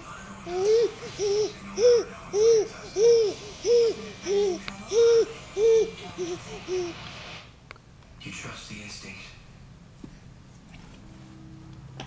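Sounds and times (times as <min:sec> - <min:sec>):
baby cooing: 0:00.4 - 0:07.0.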